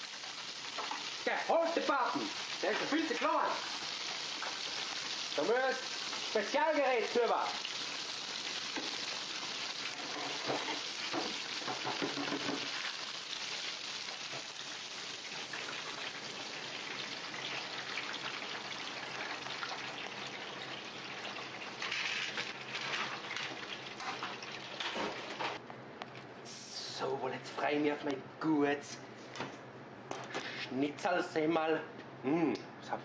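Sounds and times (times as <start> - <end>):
food deep-frying in oil: 0.0 - 25.6.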